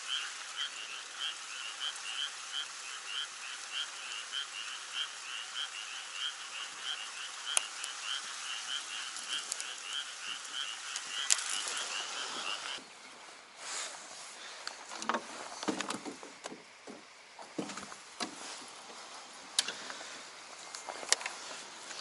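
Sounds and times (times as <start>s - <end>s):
frog croaking: 0.0s - 12.9s.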